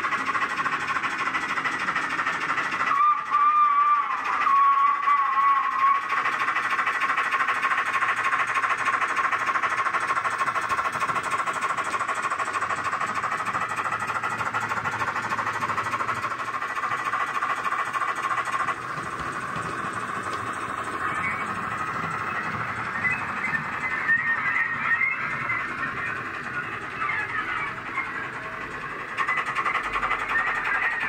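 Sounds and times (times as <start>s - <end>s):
model steam locomotive exhaust beat: 0.0s - 31.0s
locomotive whistle: 2.8s - 6.5s, 19.9s - 28.4s, 29.2s - 31.0s.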